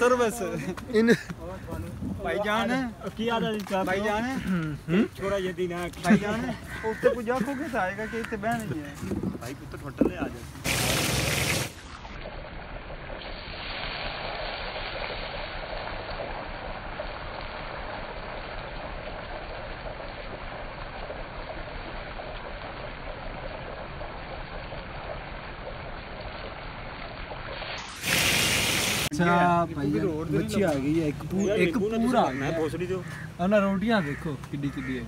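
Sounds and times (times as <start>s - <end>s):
hot oil sizzling and crackling: 10.6s - 32.0s.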